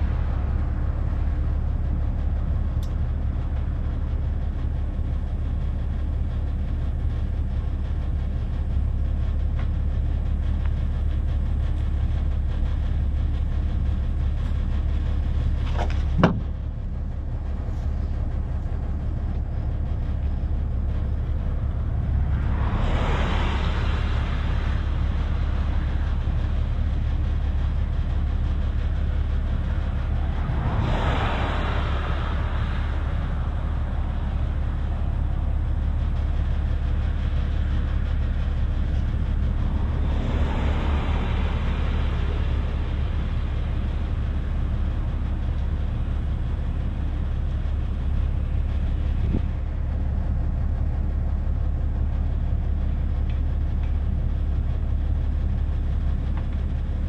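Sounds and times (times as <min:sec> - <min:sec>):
cars passing on highway: 0:00.0 - 0:08.8, 0:09.6 - 0:54.4
steady low rumble: 0:00.0 - 0:57.0.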